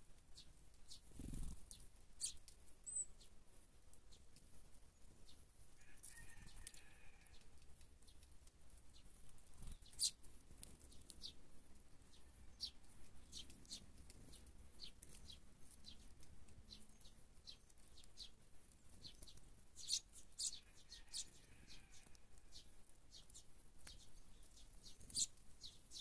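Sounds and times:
sparrows chirping: 0.2 - 26.0.

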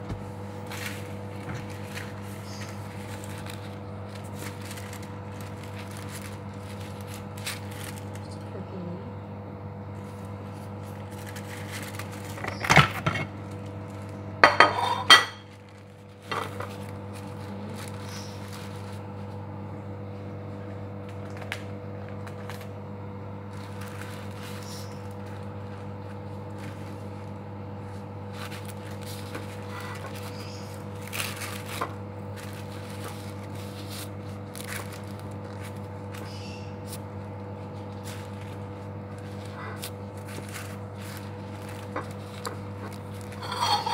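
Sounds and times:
electrical hum: 0.0 - 43.9
plate and knife clattering: 14.4 - 15.4, 43.4 - 43.9.

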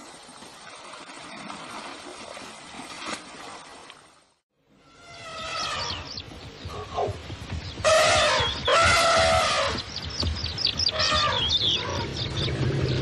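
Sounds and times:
elephant trumpeting: 4.8 - 6.1, 7.8 - 9.9, 10.9 - 12.1
small birds chirping: 5.0 - 13.0.

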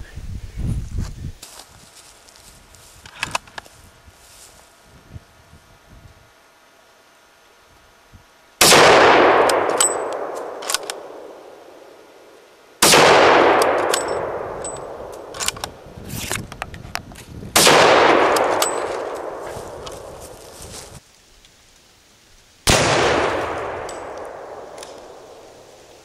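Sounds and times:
rifle shots echoing: 8.6 - 11.8, 12.8 - 15.8, 17.6 - 20.6, 22.7 - 25.7
metallic clicks and ring: 9.7 - 11.0, 13.7 - 15.8, 18.4 - 19.1, 23.8 - 24.2.

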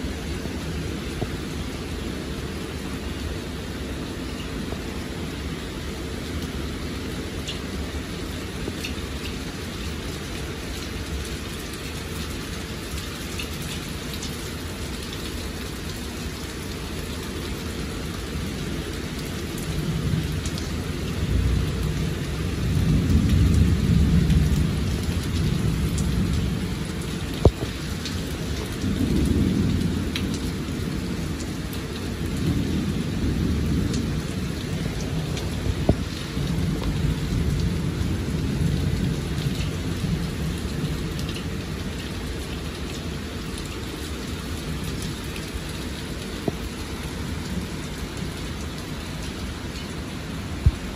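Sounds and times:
heavy rain pouring: 0.0 - 50.9
thunder rumbling: 21.2 - 41.8, 50.3 - 50.9.

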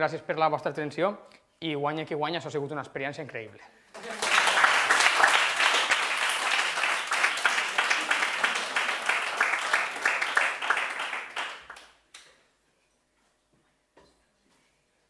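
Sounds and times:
audience applauding: 3.9 - 12.0.

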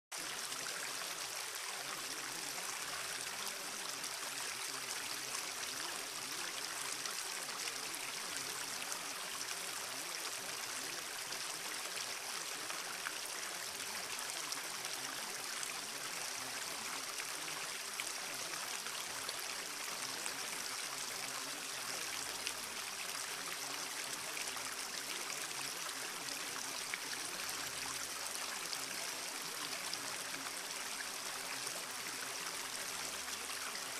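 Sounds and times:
flowing stream water: 0.1 - 33.9.

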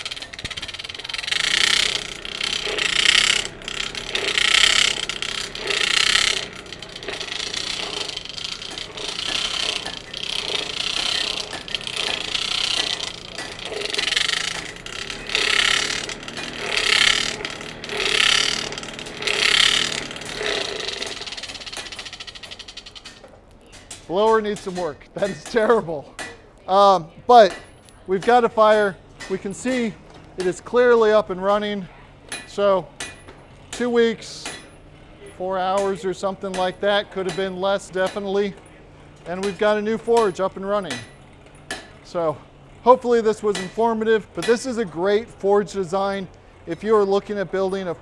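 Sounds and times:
forge blower whirring: 0.0 - 23.1.

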